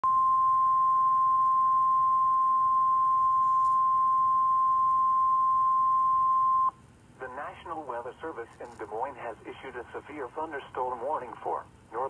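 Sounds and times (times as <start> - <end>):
steady pure alarm tone: 0.0 - 6.7.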